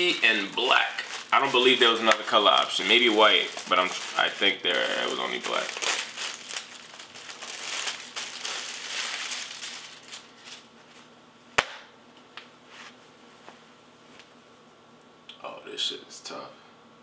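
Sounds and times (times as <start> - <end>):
packaging crinkling and rustling: 0.0 - 11.1
sharp snap: 11.6 - 11.9.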